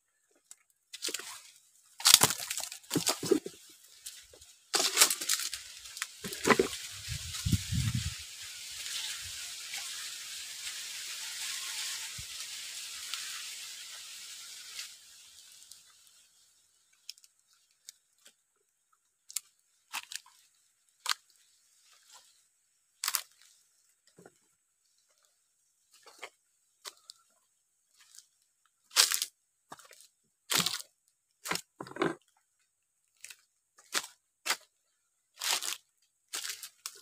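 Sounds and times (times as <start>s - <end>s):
twigs crackling and snapping: 0.4s - 11.1s, 16.9s - 18.4s, 19.2s - 22.4s, 23.0s - 24.4s, 27.9s - 31.7s, 35.4s - 37.0s
dry leaves rustling: 1.0s - 18.0s, 23.0s - 23.8s, 27.9s - 31.6s, 35.4s - 37.0s.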